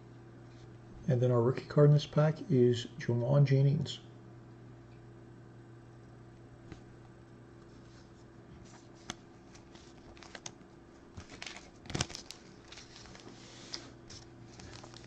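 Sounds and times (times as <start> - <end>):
cards and plastic sleeve rustling: 8.7 - 10.6, 11.2 - 15.0
foil pack rustling: 9.4 - 15.0.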